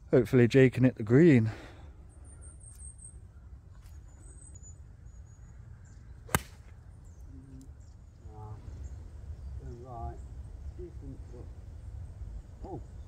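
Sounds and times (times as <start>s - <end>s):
golf club striking ball: 6.3s - 6.7s.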